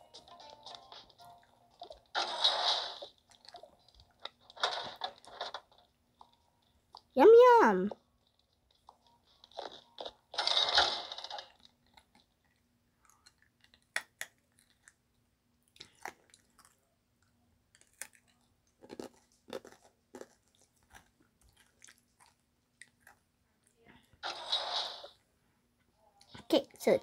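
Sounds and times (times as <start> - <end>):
chewing and crunching: 3.0 - 7.2, 8.0 - 23.9.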